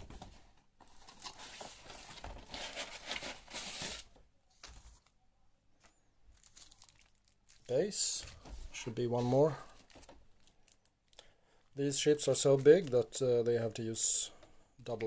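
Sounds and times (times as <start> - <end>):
plastic packaging crinkling: 0.9 - 4.1, 6.3 - 11.3, 11.9 - 13.2.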